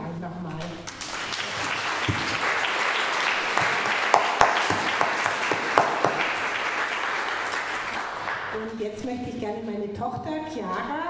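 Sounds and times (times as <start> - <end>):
audience applauding: 0.9 - 8.6.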